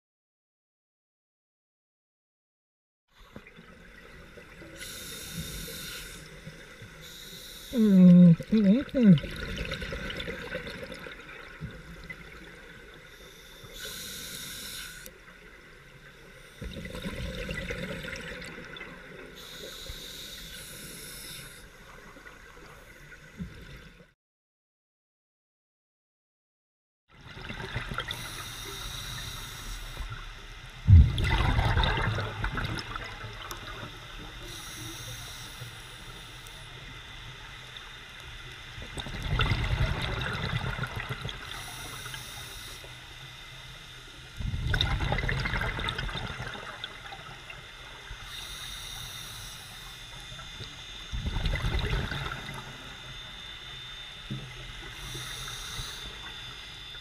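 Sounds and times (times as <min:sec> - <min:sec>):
steady hiss: 0:04.6 - 0:08.1, 0:13.0 - 0:15.2, 0:19.4 - 0:23.1, 0:28.1 - 0:31.1, 0:33.4 - 0:38.8, 0:41.5 - 0:44.2, 0:46.6 - 0:51.2, 0:52.3 - 0:57.0
exhaled bubbles gurgling underwater: 0:07.8 - 0:13.1, 0:16.6 - 0:19.8, 0:27.2 - 0:43.5, 0:44.2 - 0:57.0.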